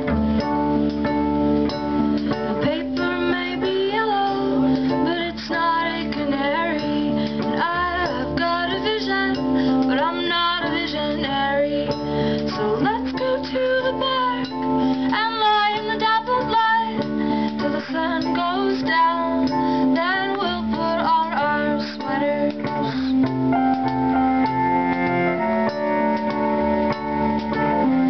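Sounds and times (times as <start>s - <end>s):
bowed cello: 0.0s - 28.0s
keyboard: 0.0s - 28.0s
woman singing: 2.5s - 23.3s.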